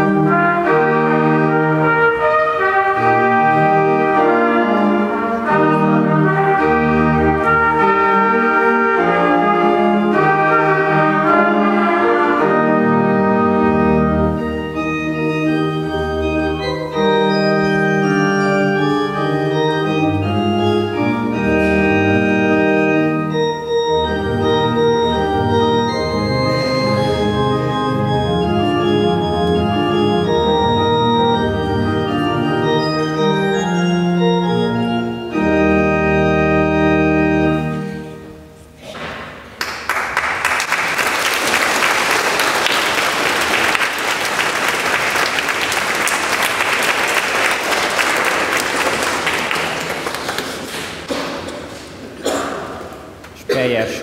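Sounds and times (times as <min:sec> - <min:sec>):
trumpet: 0:00.0 - 0:38.8
church organ: 0:00.0 - 0:53.4
audience applauding: 0:39.4 - 0:51.2.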